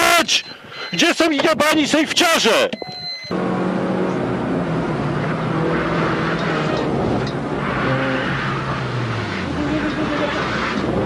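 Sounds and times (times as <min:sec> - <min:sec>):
road noise: 0:00.0 - 0:11.0
rally car engine running: 0:03.3 - 0:11.0.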